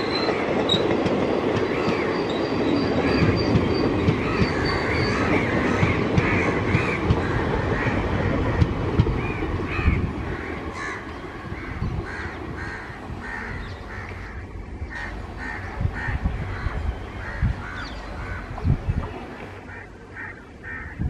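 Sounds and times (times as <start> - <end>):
passenger train rumble: 0.0 - 21.0
crows cawing: 4.2 - 8.6, 9.2 - 18.5, 19.7 - 21.0
train wheel thumps: 5.3 - 7.5, 8.3 - 9.3.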